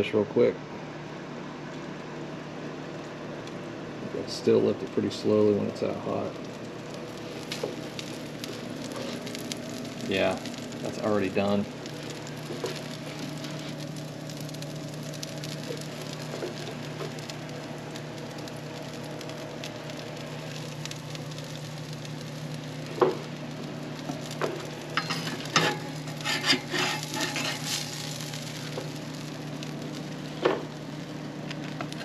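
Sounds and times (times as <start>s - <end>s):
fish sizzling on a grill: 4.4s - 32.0s
metal spatula scraping grill grate: 25.0s - 28.0s.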